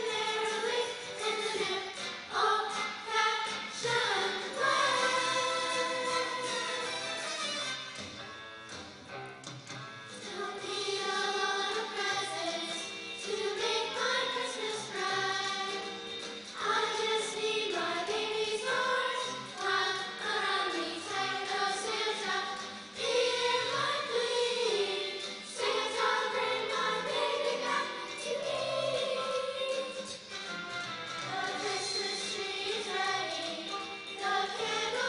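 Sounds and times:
choir singing: 0:00.0 - 0:07.2, 0:10.2 - 0:30.1, 0:31.2 - 0:35.0.

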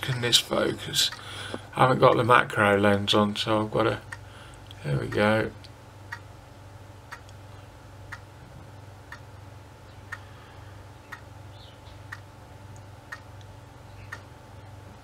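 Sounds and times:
clock ticking: 0:00.0 - 0:01.2, 0:05.0 - 0:06.3, 0:07.1 - 0:07.4, 0:08.1 - 0:08.3, 0:09.1 - 0:09.4, 0:11.1 - 0:11.3, 0:12.0 - 0:14.8.

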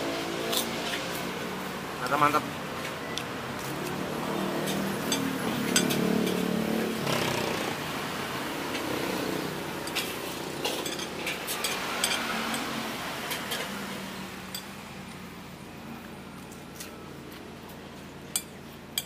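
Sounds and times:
cutlery clinking against dishes: 0:04.6 - 0:06.4, 0:09.9 - 0:13.8.

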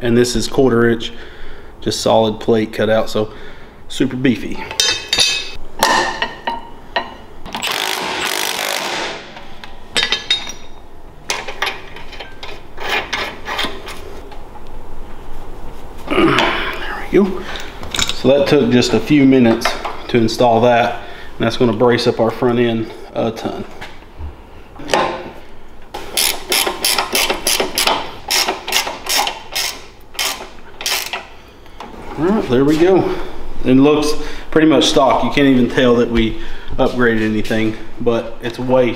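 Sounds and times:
tools clinking on metal: 0:04.6 - 0:07.7, 0:09.9 - 0:13.3
cordless power tool running: 0:07.6 - 0:09.2
ratcheting wrench clicking: 0:26.2 - 0:31.3.

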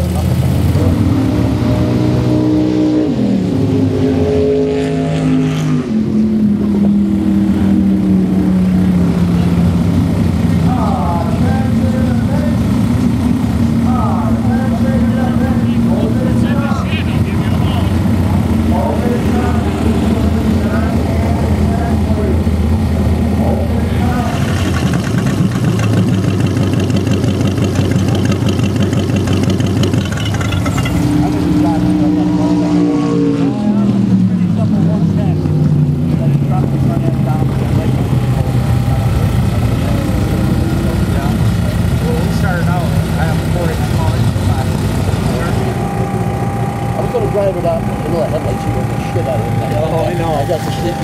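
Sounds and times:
engine idling: 0:00.0 - 0:01.6, 0:06.2 - 0:32.3, 0:33.7 - 0:51.0.

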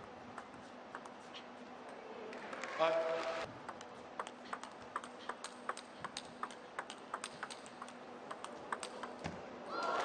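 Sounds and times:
table tennis ball rally clicks: 0:03.7 - 0:09.3.

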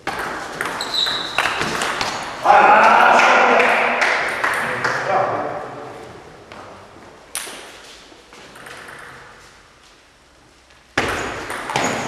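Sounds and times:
table tennis serve hit: 0:11.0 - 0:12.0.

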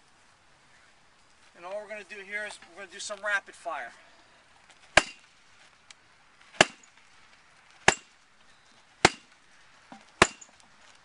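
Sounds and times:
bat hitting punching bag: 0:05.0 - 0:05.3, 0:06.6 - 0:06.9, 0:07.8 - 0:08.1, 0:09.0 - 0:09.3, 0:10.2 - 0:10.5.

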